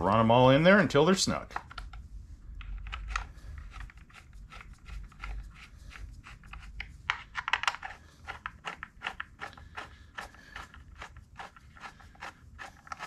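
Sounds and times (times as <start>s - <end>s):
metal clicks and scrapes: 2.6s - 13.0s.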